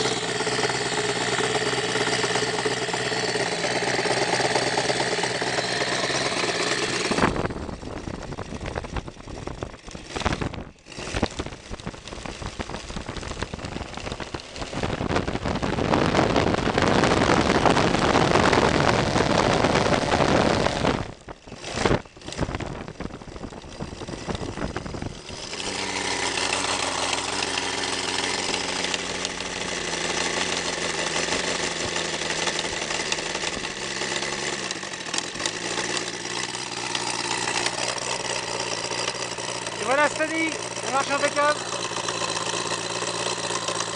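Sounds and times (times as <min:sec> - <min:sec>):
model aircraft engine running: 0:00.0 - 0:43.9.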